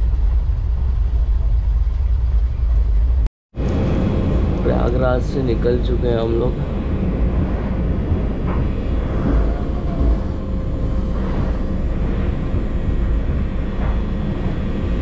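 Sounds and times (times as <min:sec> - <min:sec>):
faint hum: 0:00.0 - 0:15.0
train wheels rumbling on rails: 0:00.0 - 0:15.0.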